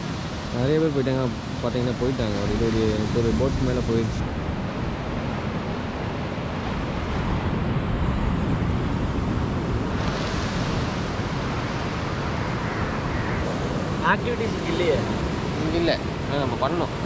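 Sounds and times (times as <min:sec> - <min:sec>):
sea surf: 0:00.0 - 0:17.0
wind buffeting microphone: 0:00.0 - 0:17.0.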